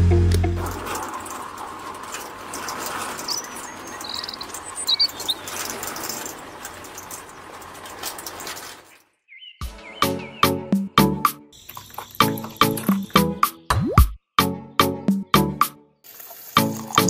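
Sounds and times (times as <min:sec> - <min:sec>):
small birds chirping: 0:01.6 - 0:13.8.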